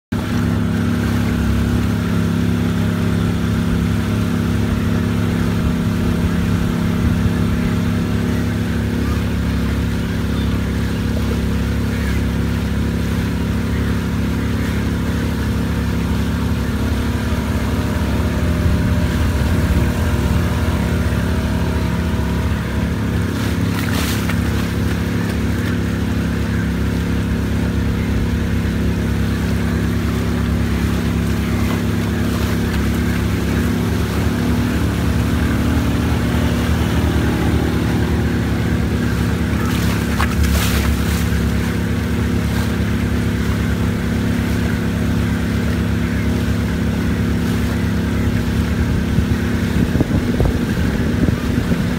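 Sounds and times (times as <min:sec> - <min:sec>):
motorboat engine droning: 0:00.0 - 0:51.9.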